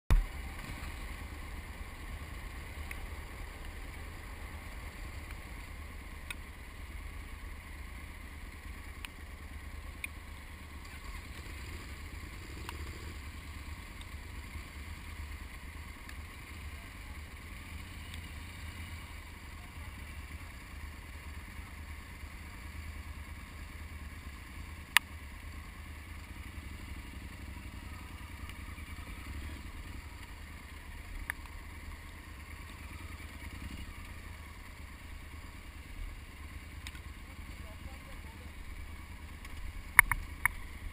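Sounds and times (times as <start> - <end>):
motorcycle engine idling: 0.1 - 40.9
sharp click: 39.4 - 40.6.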